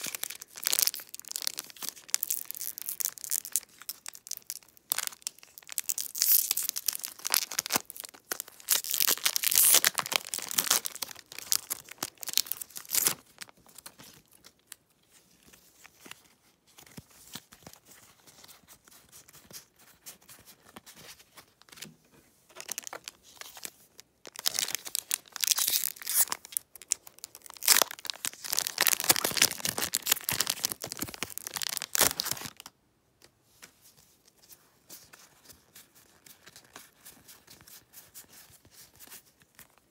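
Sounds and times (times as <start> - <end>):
foil wrapper crinkling and tearing: 0.0 - 14.7, 22.6 - 32.7.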